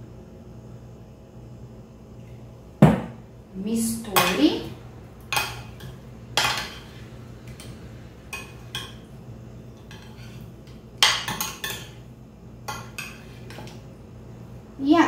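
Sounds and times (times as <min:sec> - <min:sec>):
metal spoon clinking on glass dish: 0:11.0 - 0:12.0.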